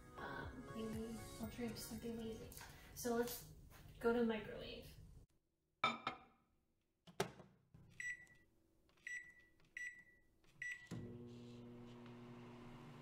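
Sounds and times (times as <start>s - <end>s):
microwave keypad beeps: 8.0s - 8.4s, 9.1s - 10.9s.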